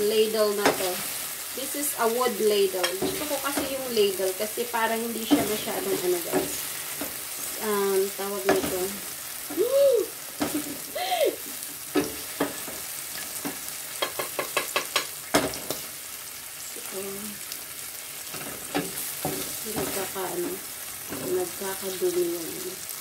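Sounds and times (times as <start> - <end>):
oil sizzling in frying pan: 0.0 - 23.0
wooden ladle tapping cookware: 14.0 - 15.2.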